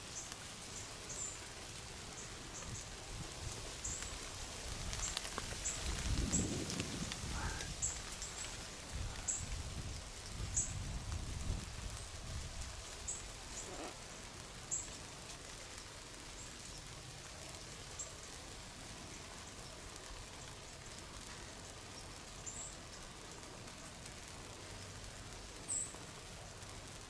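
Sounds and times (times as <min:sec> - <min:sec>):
faint steady hiss: 0:00.0 - 0:27.0.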